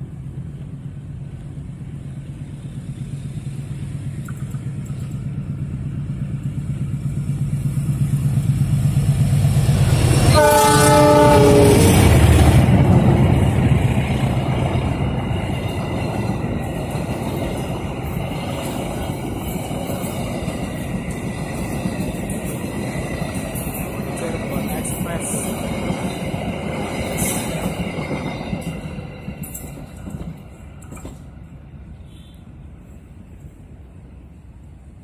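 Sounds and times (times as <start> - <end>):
coaches rolling on rails: 0.0 - 35.0
locomotive engine drone: 0.0 - 35.0
locomotive horn: 10.3 - 12.1.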